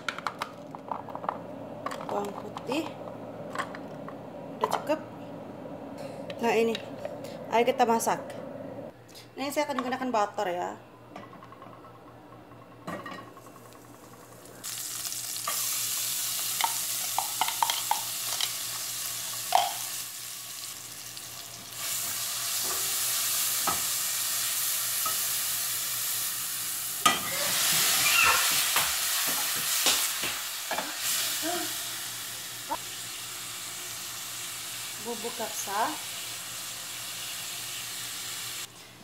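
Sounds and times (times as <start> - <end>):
onions sizzling in a pot: 13.2 - 38.8.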